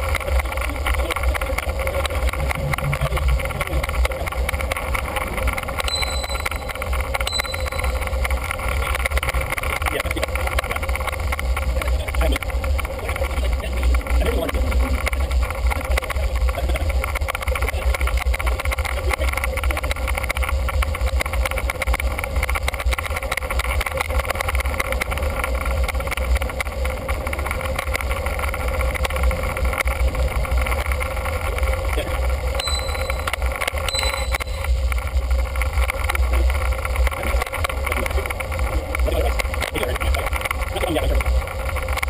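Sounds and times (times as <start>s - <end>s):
wind and riding noise: 0.0s - 42.0s
short high beeps: 5.9s - 8.1s, 32.6s - 34.8s.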